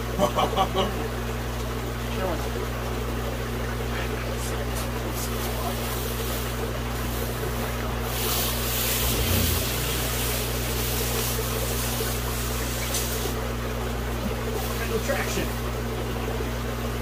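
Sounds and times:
electrical pump hum: 0:00.0 - 0:17.0
running water rushing: 0:08.1 - 0:12.8
dull low bump: 0:09.0 - 0:10.8.

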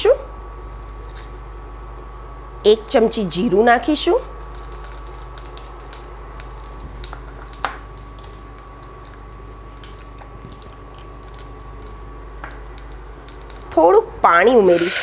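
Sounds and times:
thin high cooktop whine: 0:00.8 - 0:15.0
seeds frying in hot oil: 0:04.3 - 0:15.0
sharp pops and crackles: 0:04.4 - 0:13.8.

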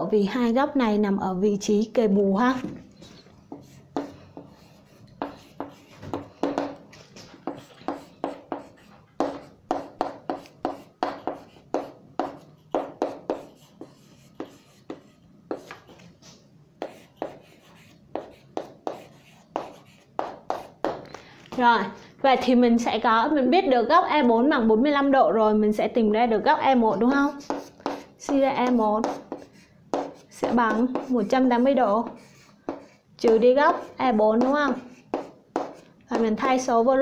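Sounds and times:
pen scratching on paper: 0:03.5 - 0:06.8, 0:07.4 - 0:16.0, 0:16.8 - 0:20.9, 0:27.2 - 0:33.0, 0:33.7 - 0:35.9.

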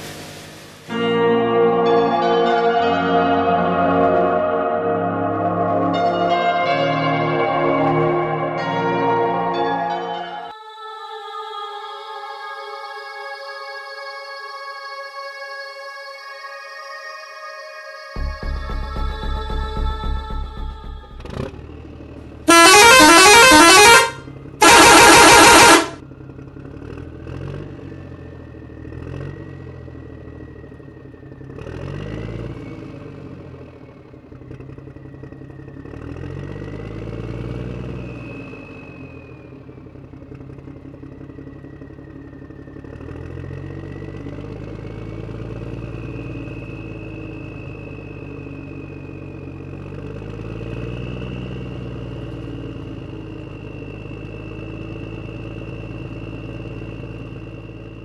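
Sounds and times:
vehicle engine running: 0:18.2 - 0:58.0
vehicle horn honks: 0:22.5 - 0:26.0.

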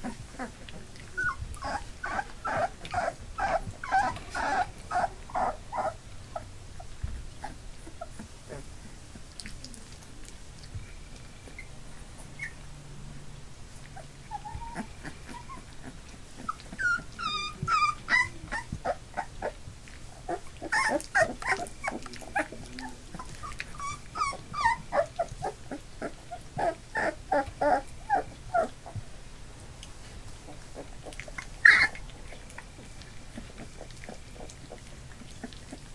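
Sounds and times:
puppies whimpering and crying: 0:00.0 - 0:09.3, 0:11.4 - 0:12.6, 0:13.9 - 0:19.6, 0:20.2 - 0:29.0, 0:30.5 - 0:35.9.

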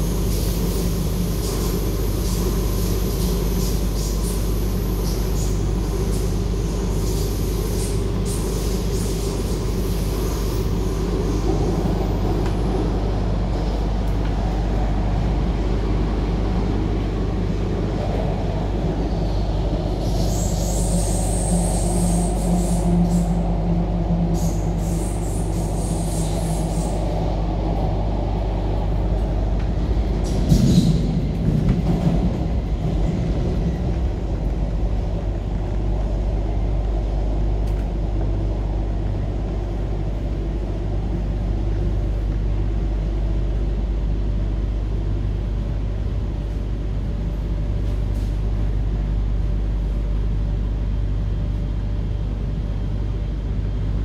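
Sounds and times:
train rattle: 0:00.0 - 0:42.8
wheels rumbling on rail: 0:00.0 - 0:54.0.

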